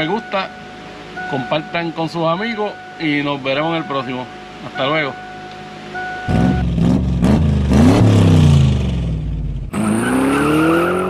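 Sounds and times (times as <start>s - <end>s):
car engine revving: 5.8s - 11.0s
engine accelerating: 6.0s - 11.0s.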